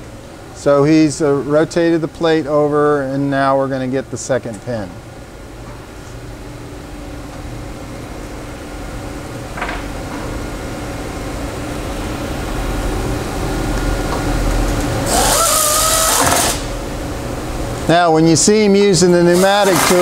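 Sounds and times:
steady low hum: 0:00.0 - 0:20.0
pneumatic tool hissing and whining: 0:15.1 - 0:16.7.

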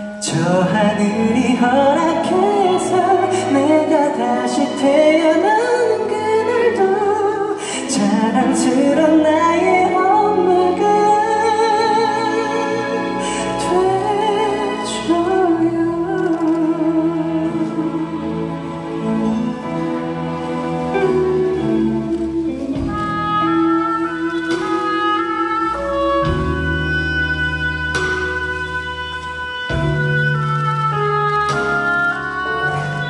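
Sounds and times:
orchestra playing: 0:00.0 - 0:33.0
man singing a ballad: 0:00.1 - 0:05.5.

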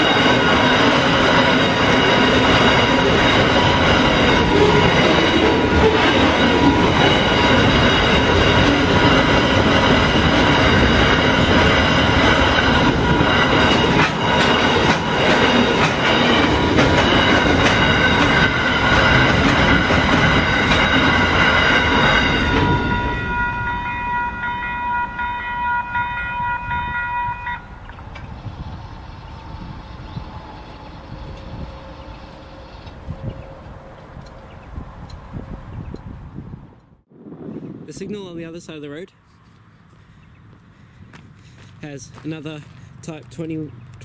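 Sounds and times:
freight train wagons clattering: 0:00.0 - 0:24.4
crossing bells ringing: 0:00.0 - 0:33.2.

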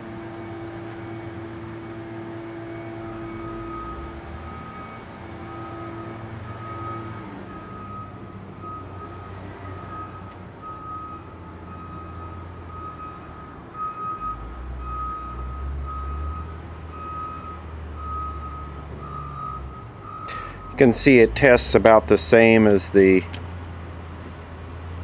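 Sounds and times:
low engine rumble: 0:00.0 - 0:25.0
reversing beeper short beeps: 0:02.7 - 0:20.8.

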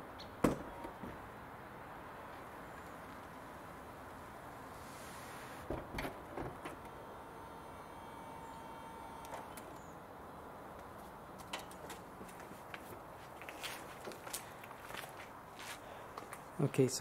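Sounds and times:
faint pump whine: 0:02.0 - 0:15.1
convertible top mechanism clicks and clunks: 0:07.6 - 0:10.0.

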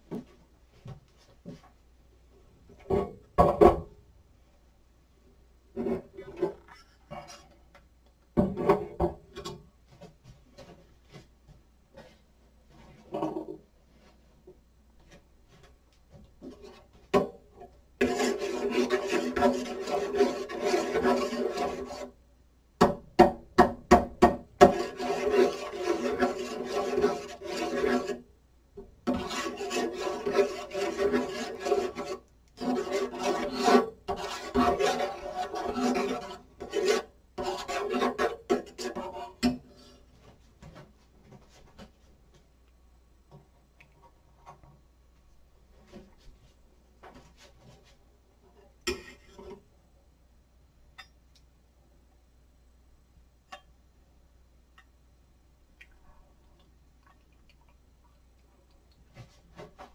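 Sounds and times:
rasping scraping strokes: 0:18.0 - 0:22.2, 0:24.6 - 0:28.3, 0:29.1 - 0:40.0.

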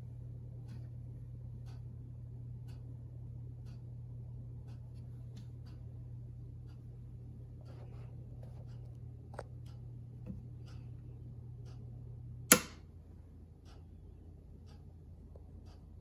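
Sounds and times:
clock ticking: 0:00.2 - 0:07.8, 0:08.6 - 0:16.0
switch click: 0:12.5 - 0:12.8.

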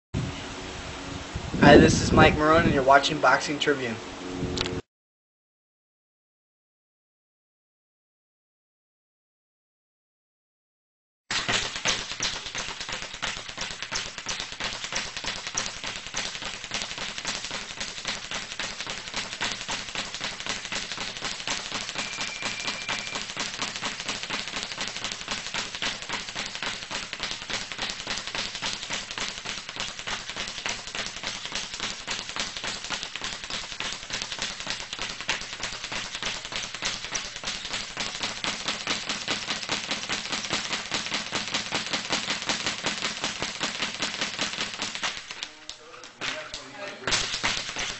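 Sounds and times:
rapid punching taps: 0:11.3 - 0:45.2.

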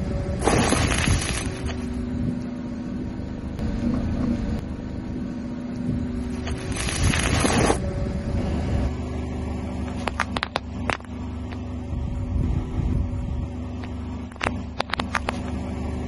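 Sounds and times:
car engine running: 0:00.0 - 0:16.0
biscuit pack crunching: 0:00.4 - 0:01.9, 0:06.3 - 0:07.8.

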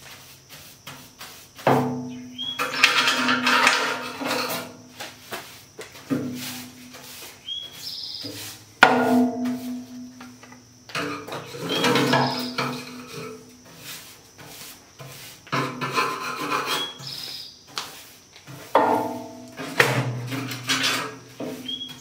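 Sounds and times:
metal on metal squeaks: 0:02.3 - 0:04.7, 0:11.1 - 0:13.2, 0:15.8 - 0:17.3, 0:20.3 - 0:22.0
metal bucket ringing: 0:08.8 - 0:10.2, 0:18.8 - 0:19.6
sharp metal clang: 0:08.8 - 0:10.2.

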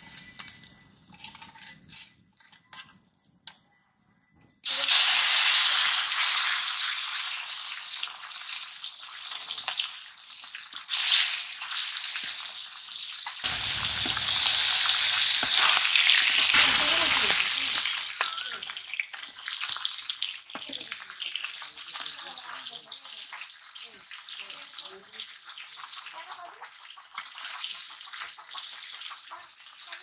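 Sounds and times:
fish sizzling in hot oil: 0:04.6 - 0:30.0
metal spatula turning food: 0:13.4 - 0:19.9.

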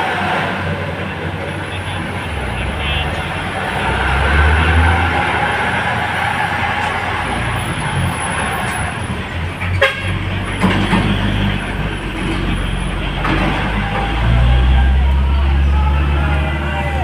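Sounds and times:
diesel truck engines droning: 0:00.0 - 0:17.0
road traffic noise: 0:00.0 - 0:17.0.

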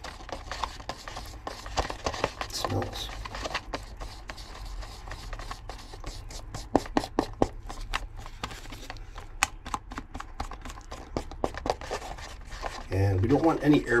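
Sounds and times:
stick scraping paper plate: 0:00.0 - 0:14.0.

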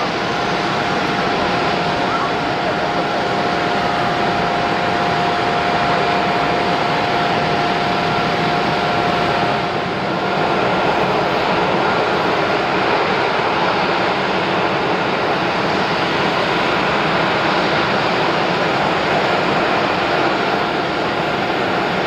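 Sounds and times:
jet airliner landing: 0:00.0 - 0:22.0.

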